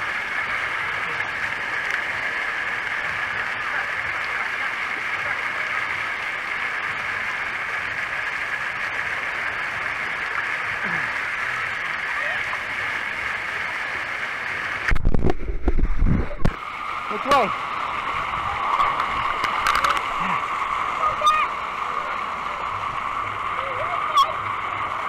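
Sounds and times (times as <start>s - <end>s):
water splashing: 0.0s - 25.0s
rumbling bump on microphone: 14.9s - 16.6s
distant crowd voices: 16.7s - 25.0s.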